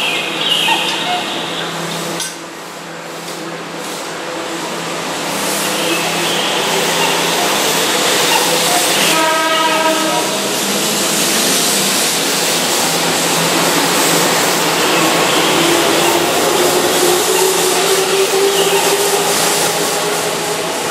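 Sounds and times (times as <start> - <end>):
electric train passing at speed: 0.0 - 20.9
train horn: 5.8 - 10.7, 14.8 - 20.9.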